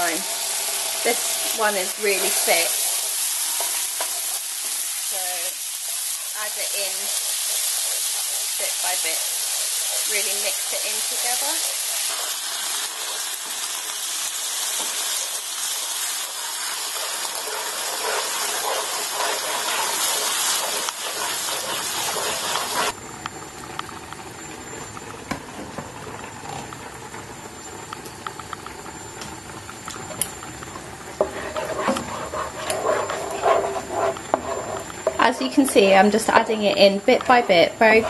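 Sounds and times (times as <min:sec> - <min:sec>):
curry paste sizzling in pan: 0:00.0 - 0:23.0, 0:31.1 - 0:35.6
spatula scraping a pan: 0:01.5 - 0:04.8, 0:06.2 - 0:13.6, 0:16.3 - 0:22.9, 0:31.1 - 0:36.4, 0:37.2 - 0:38.0.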